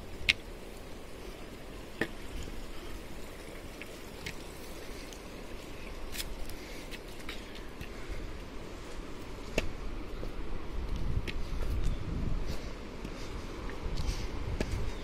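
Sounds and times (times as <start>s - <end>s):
flowing water rushing: 0.0s - 6.9s
footsteps on stone trail: 0.0s - 15.0s.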